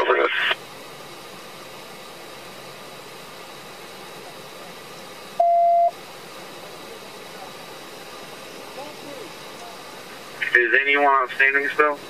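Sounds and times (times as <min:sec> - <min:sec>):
low hiss of idling car: 0:00.0 - 0:12.0
electronic beep: 0:05.4 - 0:05.9.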